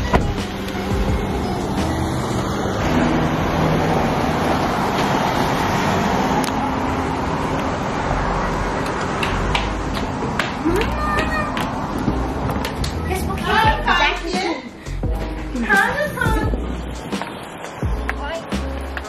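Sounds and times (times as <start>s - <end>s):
vehicle engine running: 0.0s - 11.1s.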